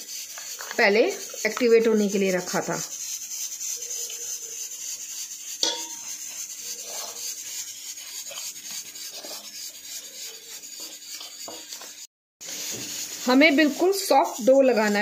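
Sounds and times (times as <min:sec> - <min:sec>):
spoon stirring flour in metal bowl: 0:00.0 - 0:15.0
spoon tapping bowl: 0:05.6 - 0:06.0.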